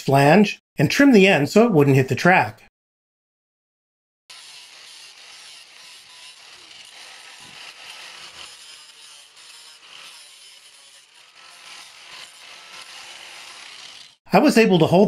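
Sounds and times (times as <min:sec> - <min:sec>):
angle grinder cutting metal: 0:04.3 - 0:14.2.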